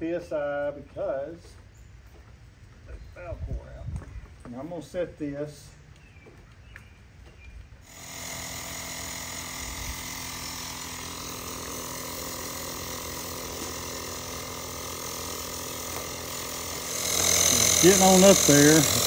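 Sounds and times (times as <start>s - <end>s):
air compressor running: 7.8s - 19.0s.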